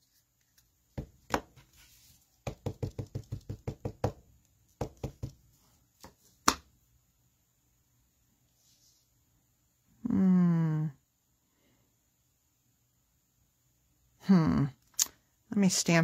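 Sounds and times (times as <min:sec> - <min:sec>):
ink pad tapping on stamp: 0:02.4 - 0:04.2, 0:04.8 - 0:05.4.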